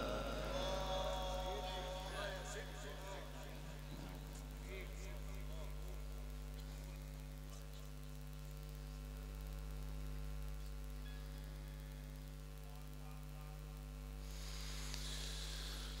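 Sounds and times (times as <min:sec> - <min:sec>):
electrical mains hum: 0:00.0 - 0:16.0
soft hiss: 0:01.2 - 0:16.0.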